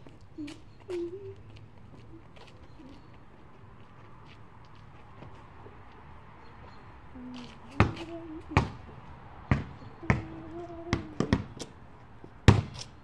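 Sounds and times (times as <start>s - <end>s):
basketball bouncing on concrete: 7.8s - 11.6s, 12.4s - 12.8s.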